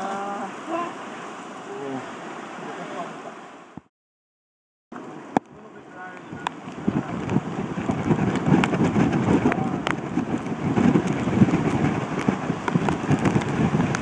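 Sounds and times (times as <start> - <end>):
wind buffeting microphone: 6.0 - 14.0.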